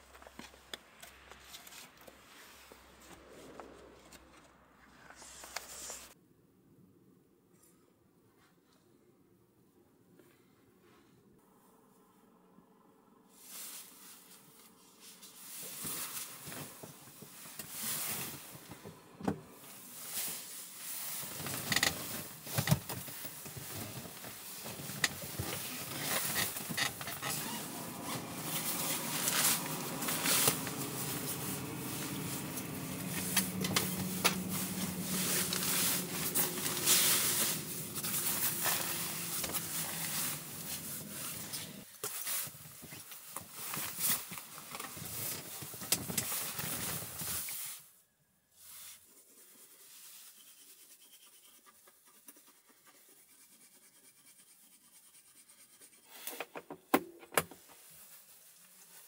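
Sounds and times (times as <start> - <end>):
rustling and scraping of handling: 0.0 - 6.2, 13.3 - 59.0.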